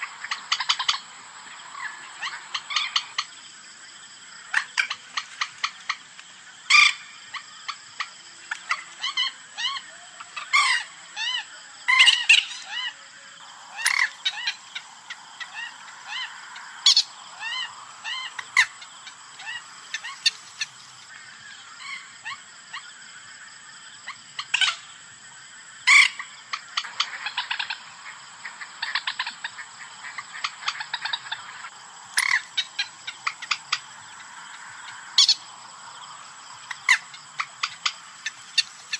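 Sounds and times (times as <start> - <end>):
rapid ticking chatter: 13.5 - 21.1, 30.3 - 38.9
moorhen calling: 13.5 - 21.2, 26.8 - 38.9.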